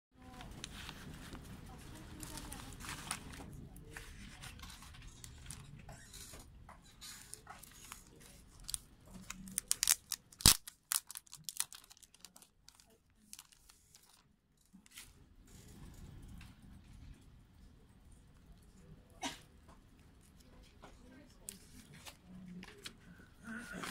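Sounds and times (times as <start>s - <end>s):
plastic shrink wrap rustling and tearing: 0.2s - 15.2s.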